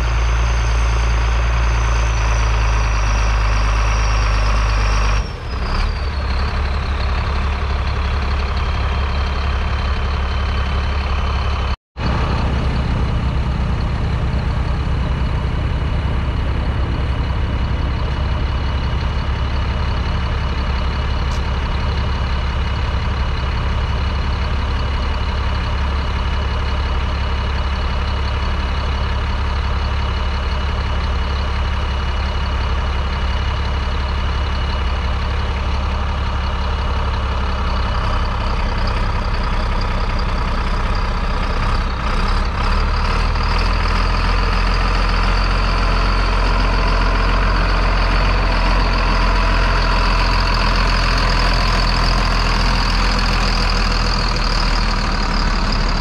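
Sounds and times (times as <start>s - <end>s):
high engine whine: 0.0s - 27.9s, 30.2s - 56.0s
tractor diesel engine under load: 0.0s - 56.0s.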